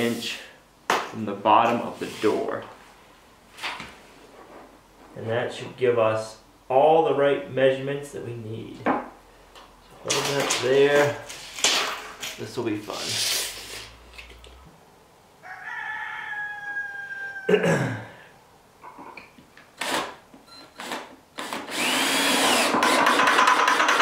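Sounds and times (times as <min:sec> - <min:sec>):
rooster crowing: 0:15.4 - 0:17.6
cordless drill boring into wood: 0:19.8 - 0:20.1, 0:20.8 - 0:24.0.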